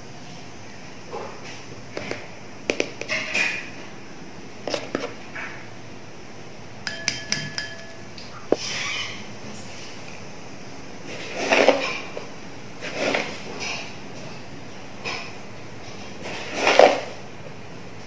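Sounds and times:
spoon clinking against glass bowl: 6.8s - 8.2s.

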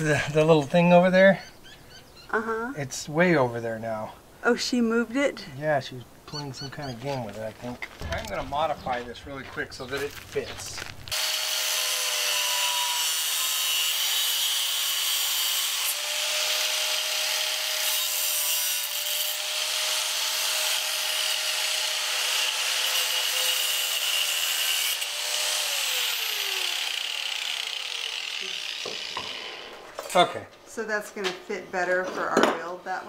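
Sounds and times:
angle grinder grinding metal: 10.8s - 30.1s.

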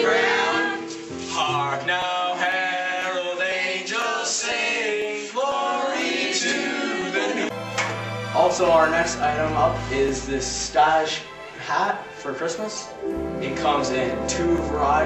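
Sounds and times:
group of teenagers singing: 0.0s - 7.7s
held low notes: 7.5s - 15.0s.

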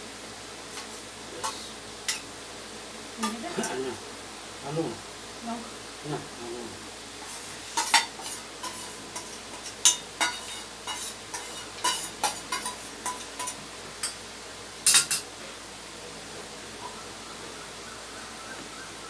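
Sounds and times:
metal bowl and plates clinking: 7.7s - 14.2s, 14.9s - 15.3s.

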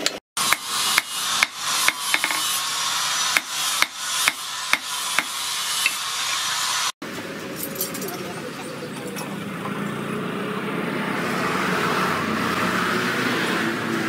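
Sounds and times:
hammer striking metal on anvil: 0.0s - 2.6s, 3.3s - 6.0s.

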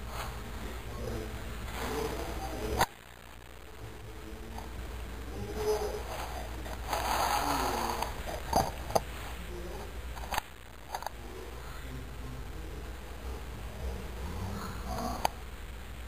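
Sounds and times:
ferret sniffing: 5.6s - 8.6s.

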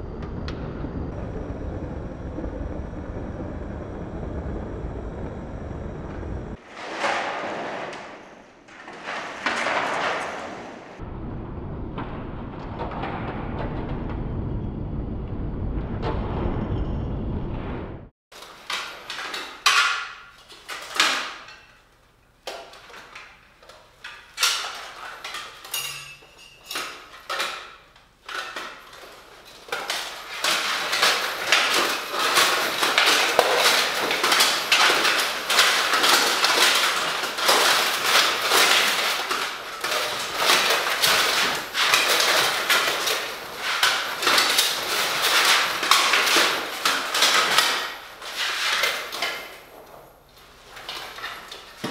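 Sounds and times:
plate armour and mail rattling: 18.4s - 51.9s.

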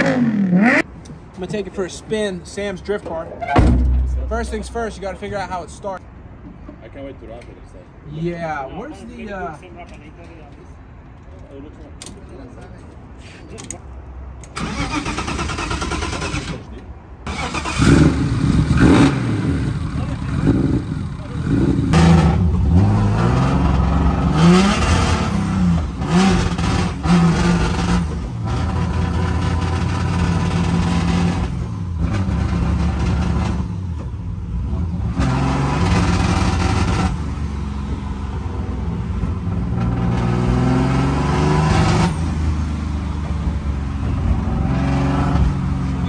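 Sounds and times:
car engine revving: 0.0s - 0.9s, 17.3s - 46.0s.

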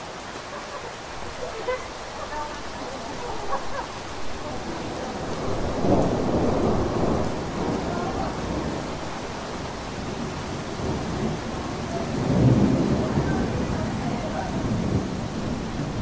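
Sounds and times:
steady rain falling: 0.0s - 16.0s
low rumble of thunder: 4.4s - 16.0s.

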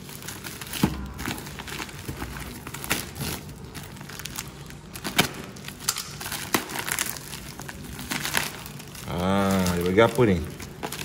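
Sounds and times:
plastic wrapping crinkling and tearing: 0.0s - 11.0s.

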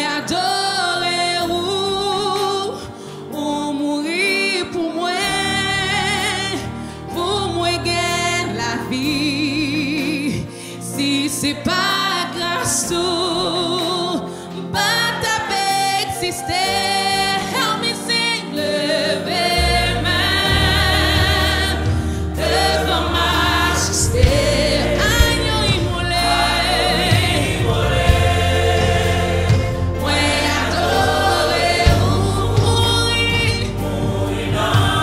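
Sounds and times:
musical accompaniment: 0.0s - 35.0s
backing singers: 14.8s - 35.0s
deep bass: 19.5s - 35.0s
woman singing lead vocals: 29.8s - 35.0s.

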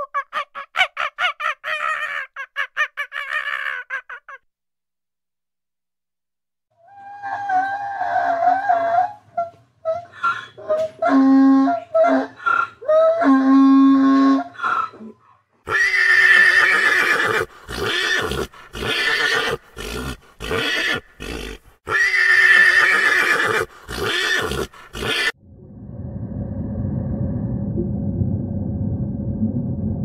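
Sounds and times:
clear-pitched animal calls: 6.8s - 15.2s
horse whinnying: 15.7s - 25.4s.

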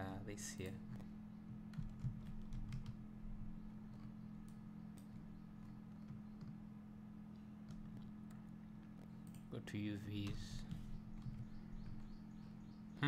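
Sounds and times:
low steady hum: 0.0s - 13.0s
keyboard and mouse clicks: 1.7s - 3.0s, 7.6s - 9.5s.

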